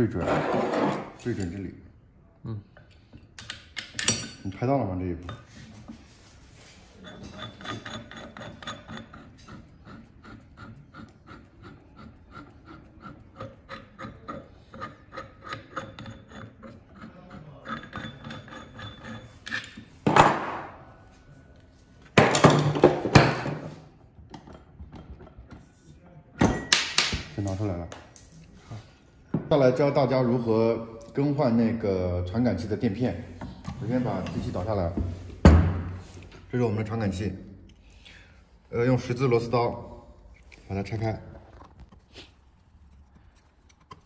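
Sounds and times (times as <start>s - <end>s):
metal clattering and scraping: 0.0s - 1.6s, 5.3s - 10.3s, 12.5s - 21.0s.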